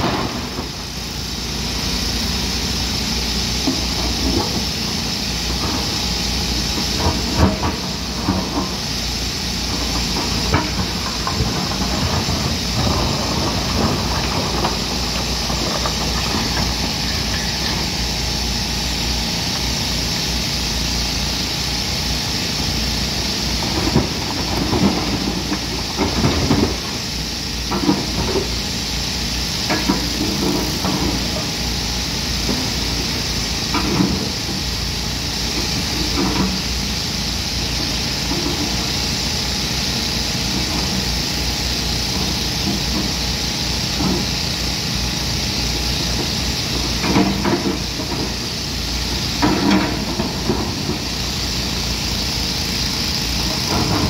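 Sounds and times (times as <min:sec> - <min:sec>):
constant hiss: 0:00.0 - 0:54.0
excavator diesel engine running: 0:00.0 - 0:54.0.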